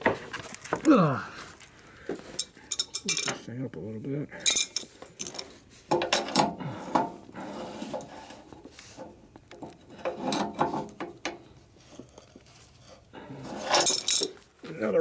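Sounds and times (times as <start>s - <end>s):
wrench scraping and clinking on bolt: 2.3s - 3.4s, 4.4s - 14.4s.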